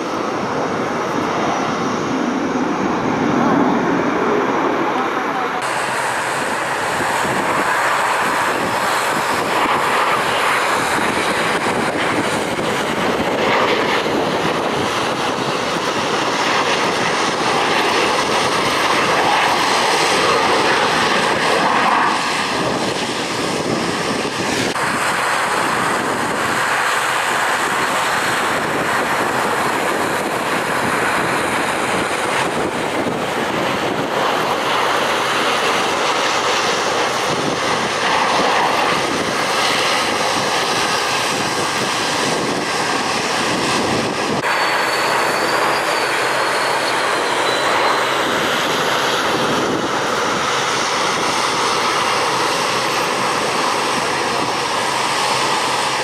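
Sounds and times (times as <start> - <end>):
fighter jet engines roaring: 0.0 - 56.0.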